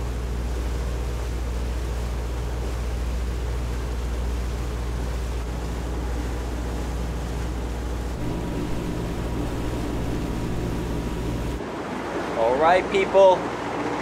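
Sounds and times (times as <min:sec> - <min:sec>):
diesel engine drone: 0:08.2 - 0:11.6
hiss of water and air: 0:08.2 - 0:11.6.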